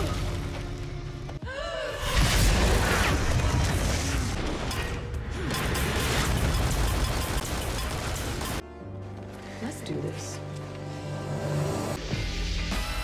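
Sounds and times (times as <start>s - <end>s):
dramatic music: 0.0s - 13.0s.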